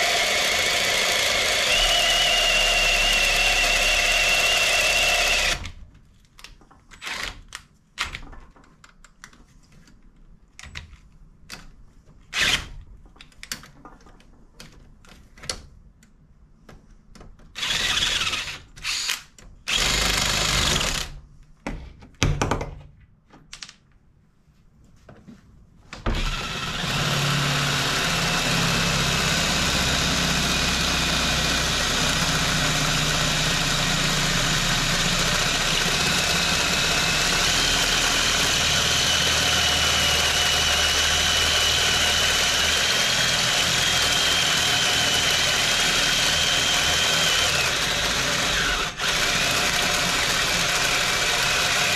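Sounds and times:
power drill boring metal: 0.0 - 5.7, 17.6 - 21.1, 26.1 - 51.9
knocks: 21.6 - 22.9.

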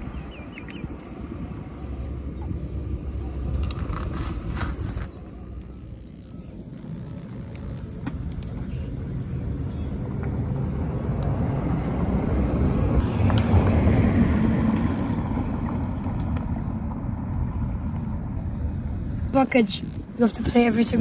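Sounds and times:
vehicle passing by: 7.0 - 17.4.

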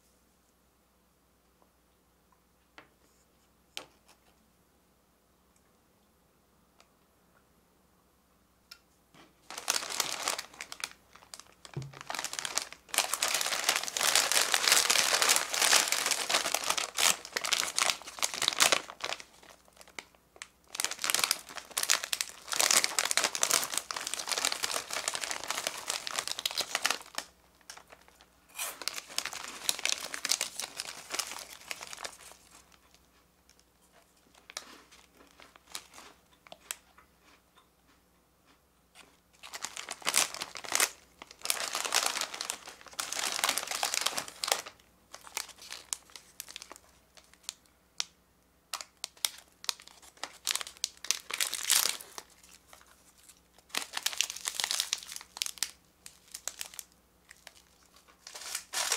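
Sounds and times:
plastic bag crinkling and tearing: 9.4 - 33.0, 34.3 - 36.8, 39.0 - 47.6, 48.7 - 58.9.

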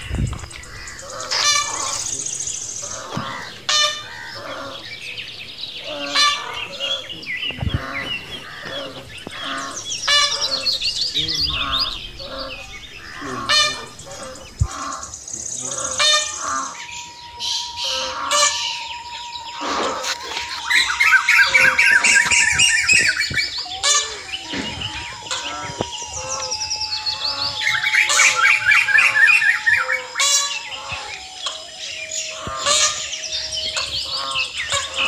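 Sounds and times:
bird trill: 0.0 - 35.0
birds chirping and calling: 0.0 - 35.0
faint steady tone: 8.2 - 35.0.

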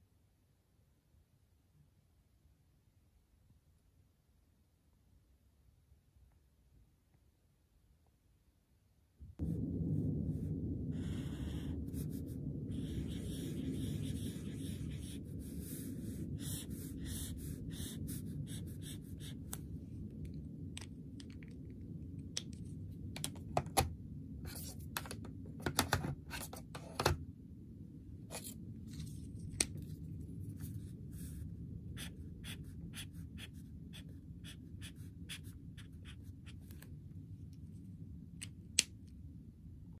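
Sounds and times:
low hum: 9.2 - 24.5
highlighter scraping on paper: 11.0 - 19.6, 32.0 - 36.8.

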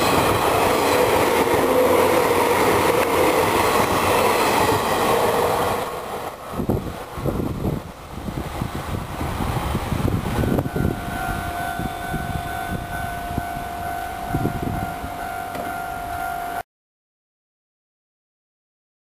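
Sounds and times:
electric train rumble: 0.0 - 16.6
level crossing alarm ringing: 10.3 - 16.6.

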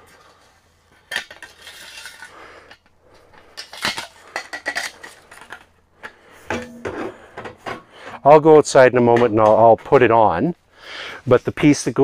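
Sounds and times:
metal pipes clinking and scraping: 0.9 - 8.5
sharp ringing metallic knocks: 6.5 - 7.6.

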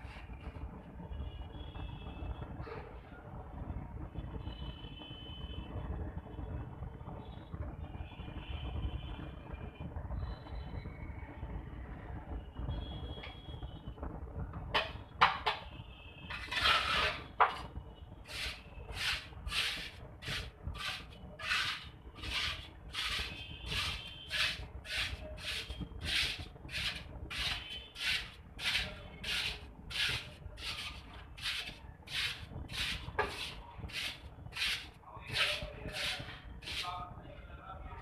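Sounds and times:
tool scraping wet mortar: 16.3 - 17.6, 18.3 - 37.0.

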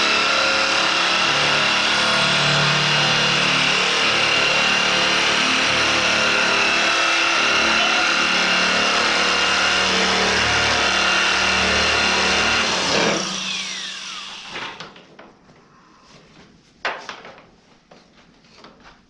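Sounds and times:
die grinder whining: 0.0 - 14.9.

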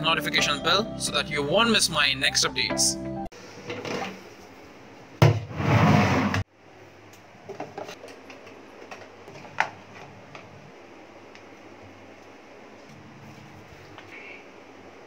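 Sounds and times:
loud rush: 5.5 - 6.4.

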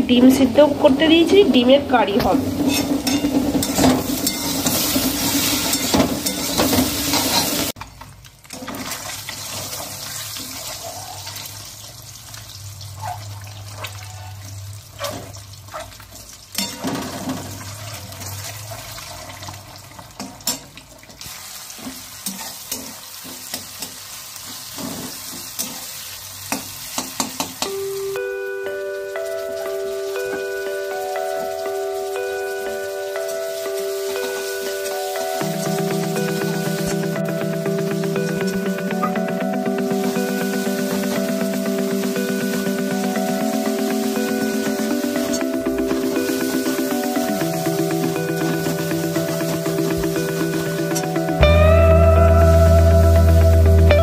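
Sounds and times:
food sizzling in hot oil: 2.4 - 7.8, 15.5 - 28.1, 29.1 - 38.4, 43.7 - 50.8
metal spatula scraping pan: 2.5 - 7.7.

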